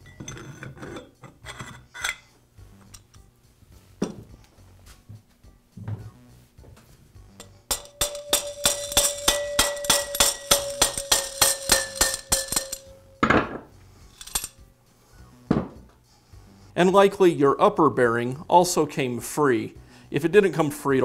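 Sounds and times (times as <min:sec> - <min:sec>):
mallet tapping metal shaft ringing: 0:07.3 - 0:13.5.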